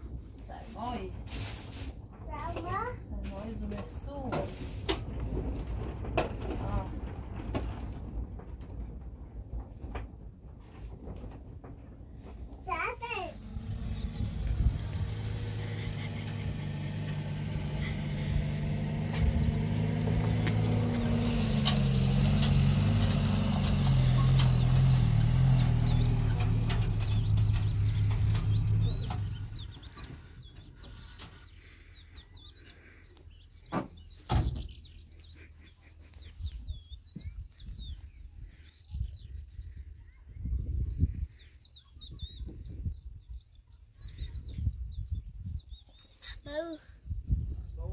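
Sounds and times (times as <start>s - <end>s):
birds chirping: 12.1s - 47.9s
vehicle engine running: 12.4s - 33.0s.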